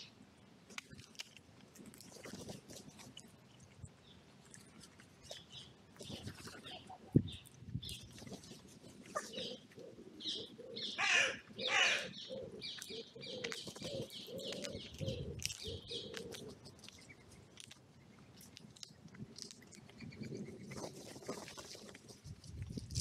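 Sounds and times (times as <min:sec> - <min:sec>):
songbirds chirping: 0:03.9 - 0:20.7
wood pigeon cooing: 0:08.2 - 0:17.1
crow cawing: 0:11.0 - 0:12.4.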